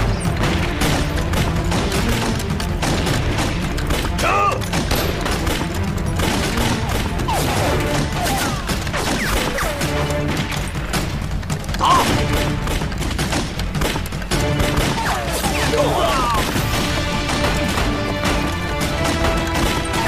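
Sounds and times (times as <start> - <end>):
dramatic orchestral score: 0.0 - 20.0
rifle gunshots: 0.0 - 20.0
shouted order: 4.2 - 4.6, 14.9 - 16.6
soldiers yelling: 4.2 - 4.7, 7.3 - 8.9, 11.8 - 12.3, 14.7 - 16.6.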